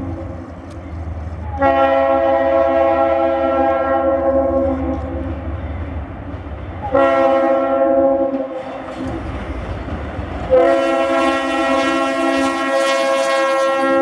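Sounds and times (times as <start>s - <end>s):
diesel locomotive rumble: 0.0s - 14.0s
train air horn blasts: 1.4s - 5.3s, 6.8s - 9.2s, 10.5s - 14.0s.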